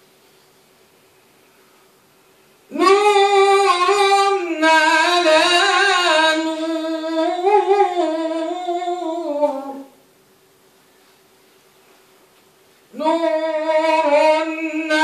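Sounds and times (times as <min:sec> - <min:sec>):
man chanting melodic recitation: 0:02.7 - 0:10.0, 0:13.0 - 0:15.0.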